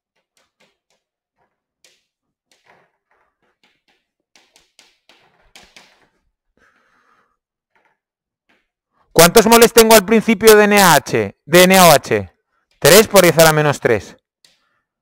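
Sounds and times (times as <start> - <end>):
chalk tapping and scraping: 0.0 - 7.1.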